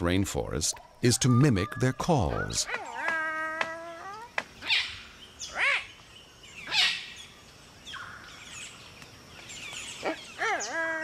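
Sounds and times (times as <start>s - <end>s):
small birds chirping: 0.0s - 11.0s
cockatoo whistled calls: 1.1s - 3.1s.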